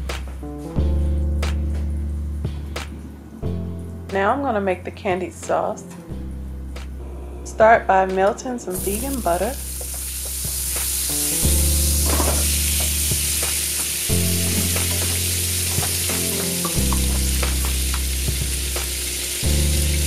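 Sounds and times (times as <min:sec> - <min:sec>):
low background music: 0:00.0 - 0:20.0
wooden spoon in skillet: 0:08.8 - 0:11.3
butter sizzling in skillet: 0:08.8 - 0:20.0.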